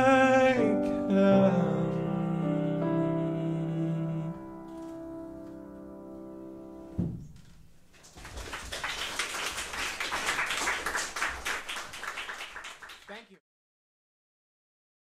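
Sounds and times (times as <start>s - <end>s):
soft thump: 6.9s - 7.5s
audience applause: 8.1s - 13.4s.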